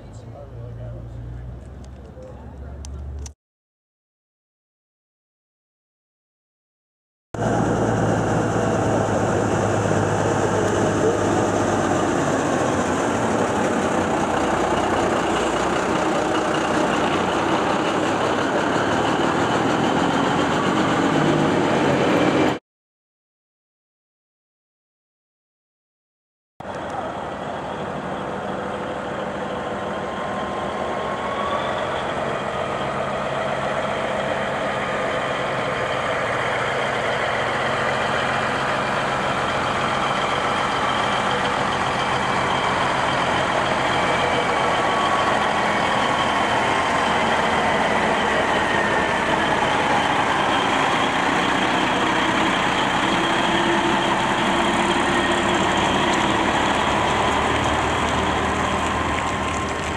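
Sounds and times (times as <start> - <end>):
truck diesel engine passing: 0.0 - 3.4, 7.4 - 22.6, 26.6 - 59.9.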